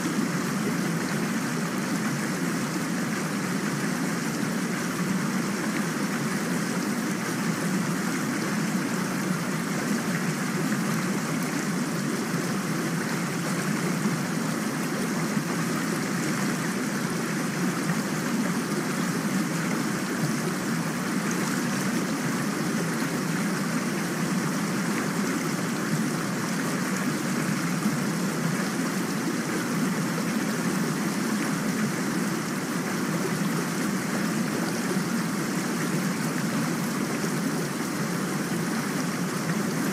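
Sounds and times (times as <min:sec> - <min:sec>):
rain falling steadily: 0:00.0 - 0:39.9.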